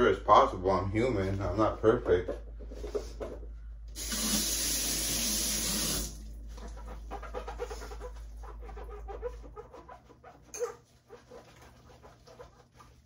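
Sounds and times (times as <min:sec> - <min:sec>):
faucet shutting off: 0:04.0 - 0:06.2
faucet running: 0:04.0 - 0:06.4.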